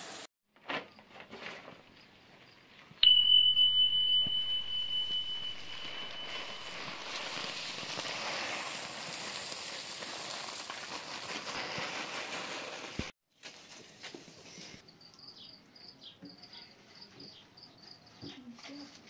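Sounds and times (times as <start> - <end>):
electronic bell ding: 3.0 - 7.8
grain pouring: 5.7 - 13.1.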